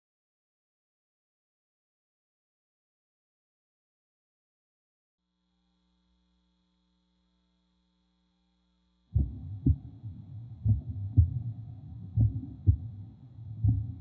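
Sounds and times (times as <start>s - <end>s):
faint hum: 5.2s - 14.0s
deep heartbeat-like double thump: 9.1s - 14.0s
low rumble: 9.1s - 14.0s.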